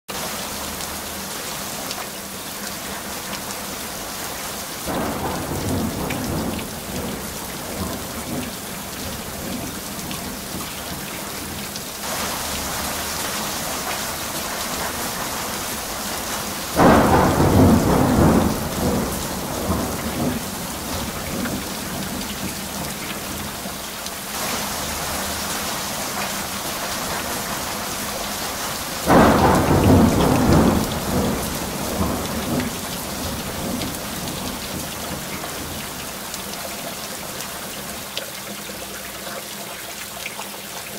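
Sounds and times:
heavy rain hissing: 0:00.1 - 0:38.2
thunder rumbling and clapping: 0:04.9 - 0:11.1, 0:13.8 - 0:23.6, 0:26.1 - 0:36.0.

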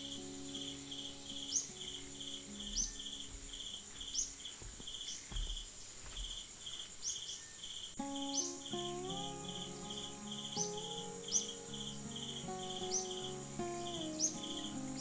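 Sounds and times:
insects chirping rhythmically: 0:00.0 - 0:15.0
high-pitched insect drone: 0:08.0 - 0:15.0.

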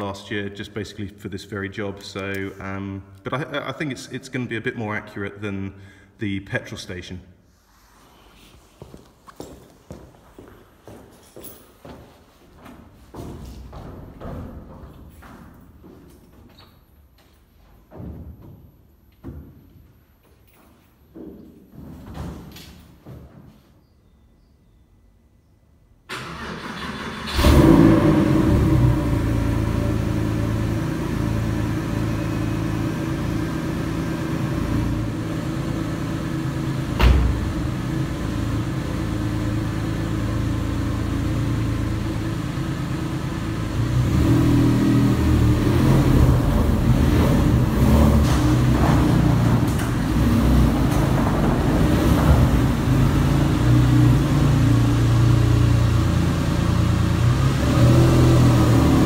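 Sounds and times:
car engine idling: 0:26.3 - 0:59.0.

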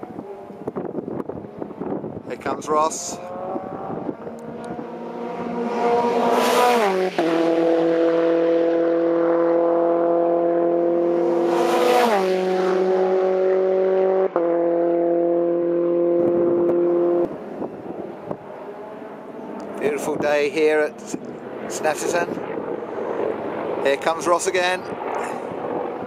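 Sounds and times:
race cars passing at speed: 0:00.0 - 0:26.0.

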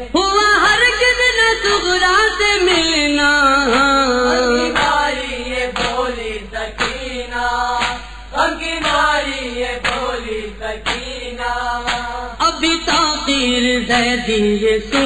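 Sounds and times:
man chanting lament: 0:00.0 - 0:05.8, 0:12.1 - 0:15.0.

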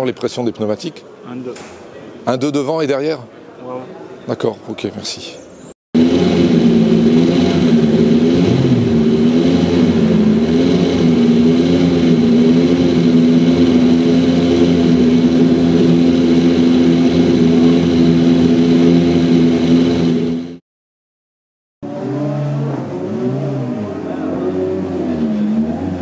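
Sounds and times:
racing car engine running: 0:06.0 - 0:20.6, 0:21.8 - 0:26.0.

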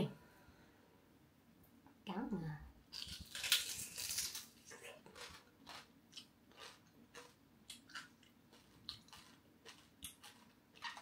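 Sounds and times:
crispy food chewing: 0:02.9 - 0:11.0.

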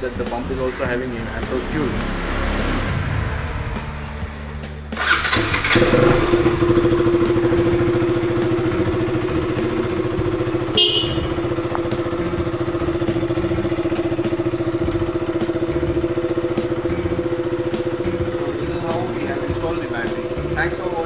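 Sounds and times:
motorcycle engine starting and idling: 0:00.3 - 0:21.0.

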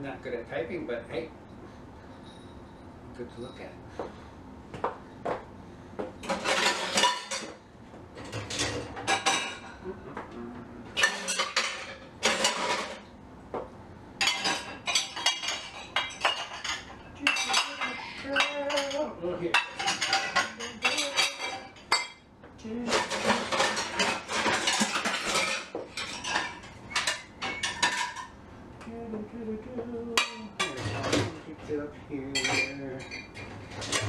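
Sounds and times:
dishes and cutlery clinking: 0:06.2 - 0:07.6, 0:08.2 - 0:09.8, 0:11.0 - 0:13.1, 0:14.2 - 0:28.3, 0:30.1 - 0:31.5, 0:32.3 - 0:34.0.

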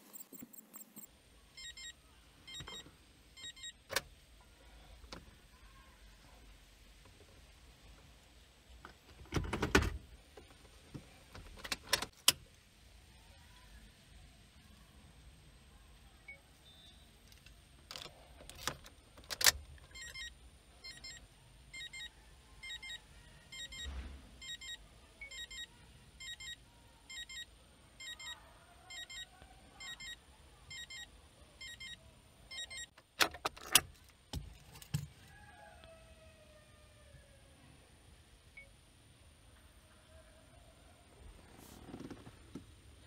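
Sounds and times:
car warning chime double beeps: 0:00.0 - 0:01.9, 0:03.4 - 0:03.8, 0:21.8 - 0:32.9
ignition key clicks and rattles: 0:11.3 - 0:12.4, 0:17.4 - 0:20.2, 0:32.6 - 0:35.1.

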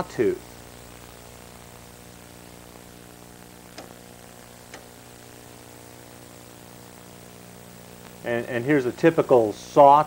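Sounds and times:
background hiss: 0:00.0 - 0:10.0
electrical mains hum: 0:00.0 - 0:10.0
faint clicks: 0:03.7 - 0:04.0, 0:04.7 - 0:04.9.

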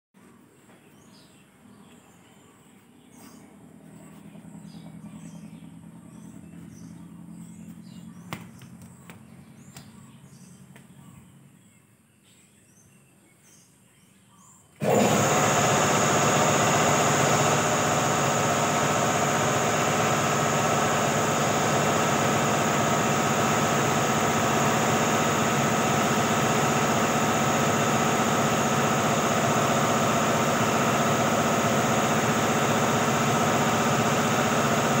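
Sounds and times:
low engine hum: 0:00.2 - 0:35.0
faint bird chirps: 0:00.6 - 0:14.8
loud steady motor running: 0:02.7 - 0:11.7, 0:14.8 - 0:35.0.

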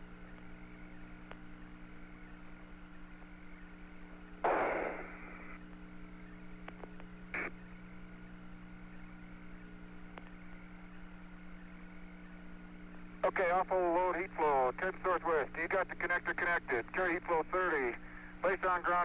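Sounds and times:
radio hiss and hum: 0:00.0 - 0:19.0
burst of radio static: 0:04.4 - 0:05.6, 0:07.3 - 0:07.6.

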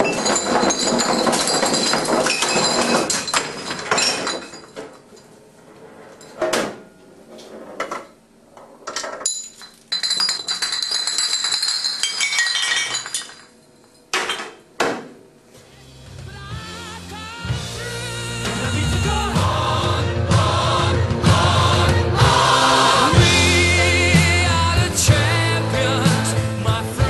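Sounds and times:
glass bottles clattering: 0:00.0 - 0:05.3, 0:08.9 - 0:14.6.

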